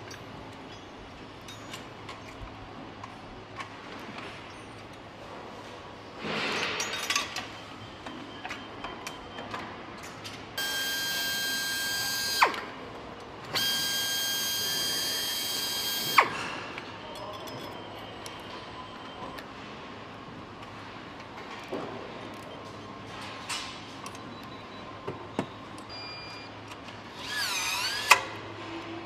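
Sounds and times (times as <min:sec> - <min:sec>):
metallic clatter of parts: 0:00.0 - 0:02.5, 0:06.2 - 0:07.6, 0:16.4 - 0:18.1
power driver whining: 0:10.6 - 0:12.7, 0:13.5 - 0:16.4.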